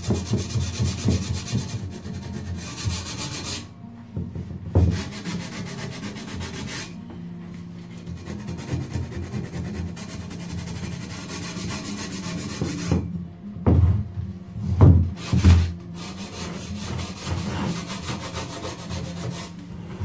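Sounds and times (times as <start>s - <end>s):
hand sanding wood: 0.0s - 3.7s, 4.8s - 7.0s, 7.9s - 13.1s, 15.2s - 20.0s.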